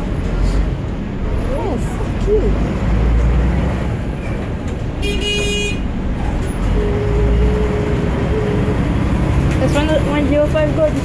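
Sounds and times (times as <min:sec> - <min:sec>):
bus engine rumble: 0:00.0 - 0:11.0.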